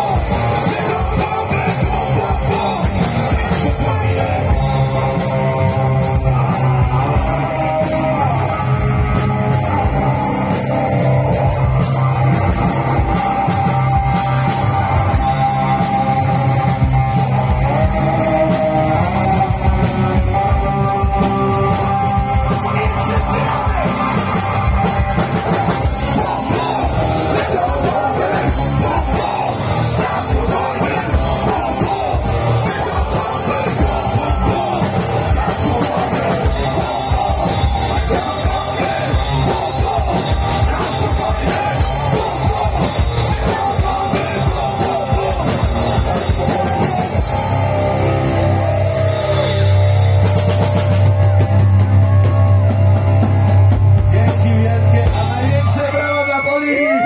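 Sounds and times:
man singing: 0.0 - 10.6, 22.4 - 49.7, 54.0 - 57.0
rock band playing loudly: 0.0 - 57.0.

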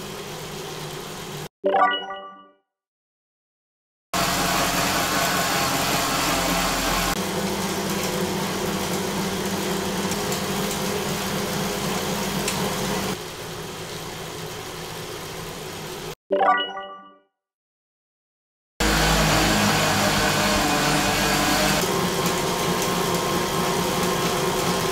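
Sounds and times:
bicycle tyre whirring on rollers: 4.2 - 16.2, 18.8 - 24.9.

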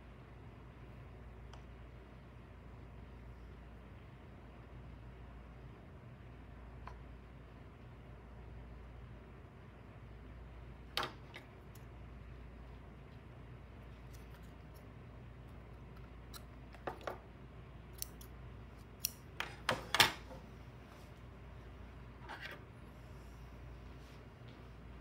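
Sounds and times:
scissors snipping yarn: 17.9 - 19.3.

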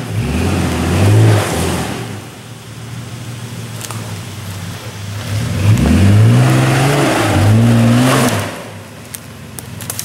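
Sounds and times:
engine revving under load: 0.0 - 2.4, 5.1 - 8.8
engine idling: 1.8 - 5.9.

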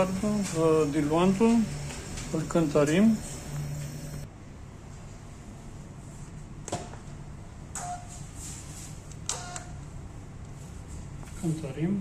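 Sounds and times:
low steady hum: 0.0 - 7.7.

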